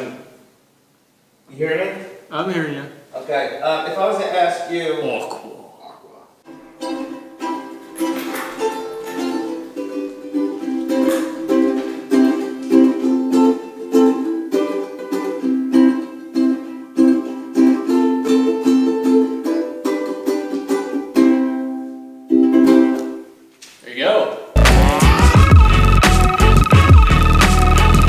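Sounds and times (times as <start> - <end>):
ukulele strumming: 6.5 - 23.4.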